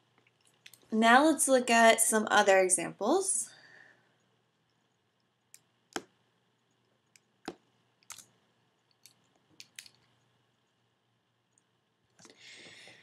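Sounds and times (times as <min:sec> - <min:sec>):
computer mouse clicks: 0:06.8 - 0:08.3, 0:08.9 - 0:10.3.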